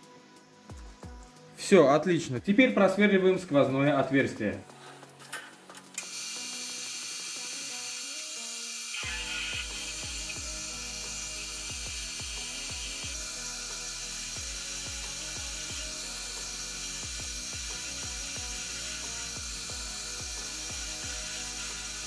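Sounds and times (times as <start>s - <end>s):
background music with bass beat: 0.0s - 6.0s, 9.0s - 22.0s
metal lathe drilling: 6.0s - 22.0s.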